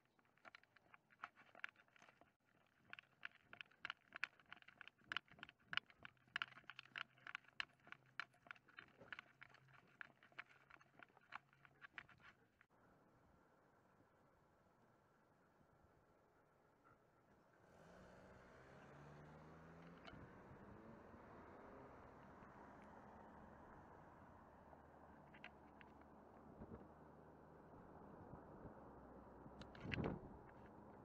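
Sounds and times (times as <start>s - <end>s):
dog claws tapping on pavement: 0.0s - 12.3s.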